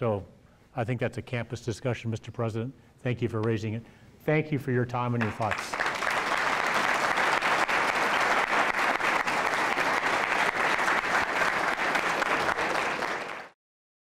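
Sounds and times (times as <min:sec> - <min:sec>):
audience applauding: 0:05.2 - 0:13.6.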